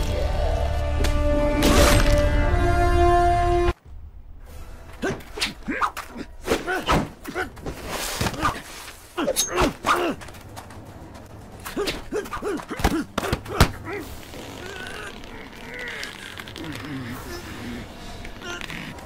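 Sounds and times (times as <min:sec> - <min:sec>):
grunts and shouts of effort: 0:05.0 - 0:07.6, 0:08.3 - 0:10.3, 0:11.7 - 0:19.0
scuffle in dirt: 0:06.0 - 0:17.0
punches landing with thuds: 0:12.6 - 0:13.9.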